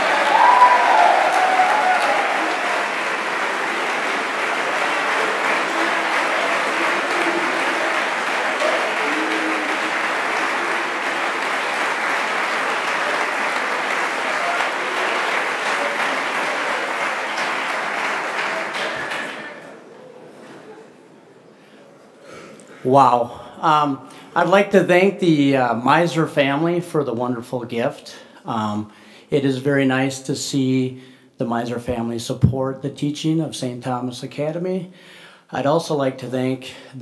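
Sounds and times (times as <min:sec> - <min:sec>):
audience applauding: 0:00.0 - 0:20.2.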